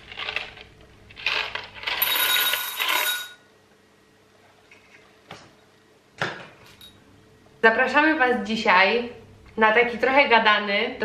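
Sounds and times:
glass bowl ringing: 2.1s - 3.4s.

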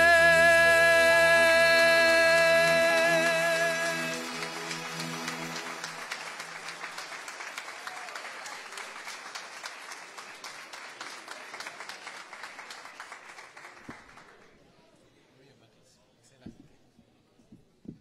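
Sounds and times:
held musical chord: 0.0s - 7.4s
audience applauding: 0.0s - 14.6s.

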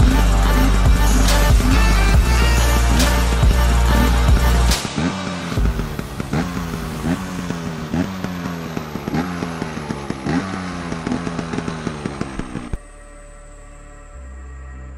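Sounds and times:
two-stroke motorbike engine revving: 0.0s - 12.8s.

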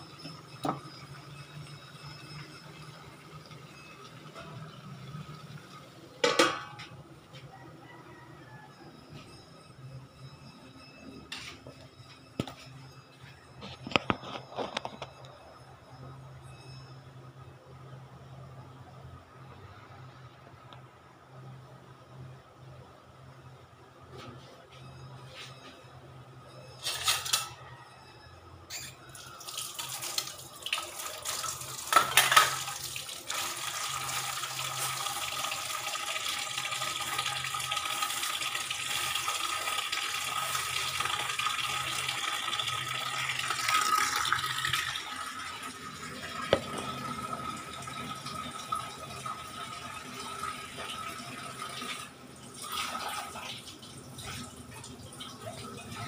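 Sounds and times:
kitchen tap running into sink: 29.4s - 56.0s.

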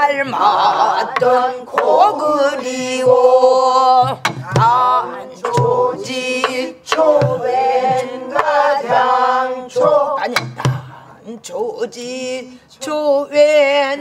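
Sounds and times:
barrel drum strokes: 1.1s - 11.0s.

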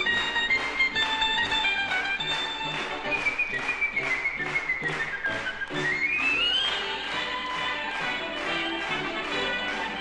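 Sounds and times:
whistle-like sliding melody: 2.9s - 7.1s.

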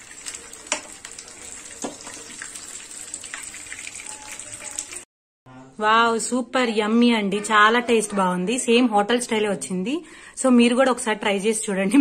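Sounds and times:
oil crackles: 0.0s - 5.0s
frying oil sizzling: 0.0s - 5.1s.

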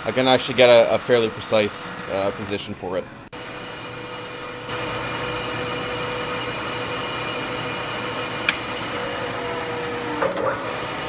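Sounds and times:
milling machine spindle running: 0.0s - 2.7s, 3.3s - 11.0s
sharp click: 8.4s - 8.7s
tap cutting metal: 8.4s - 8.7s.

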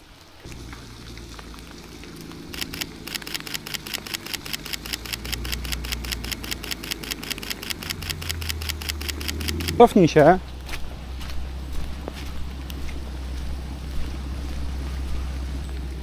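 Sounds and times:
fast even ticking: 0.5s - 10.1s
car engine idling: 0.5s - 16.0s.

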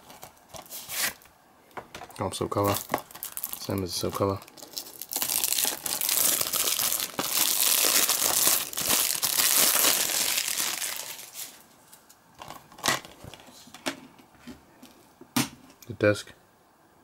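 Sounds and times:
plastic wrap crinkling: 2.5s - 13.5s.

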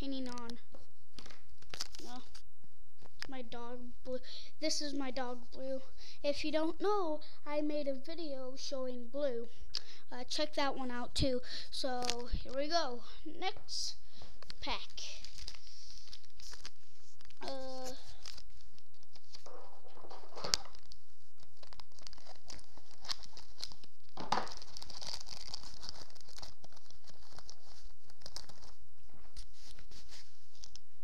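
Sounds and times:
plastic wrapping crinkling and tearing: 0.1s - 2.4s, 12.0s - 12.6s, 14.4s - 31.0s.

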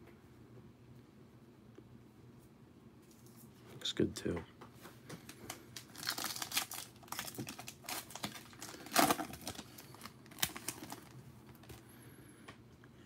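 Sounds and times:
foil wrapper crinkling: 5.2s - 11.8s.

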